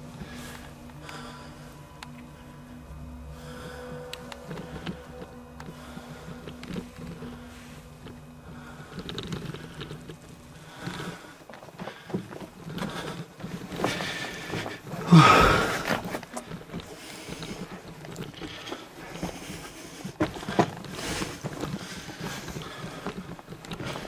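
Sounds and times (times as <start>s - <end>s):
grunt or hard breath: 3.2s - 16.2s.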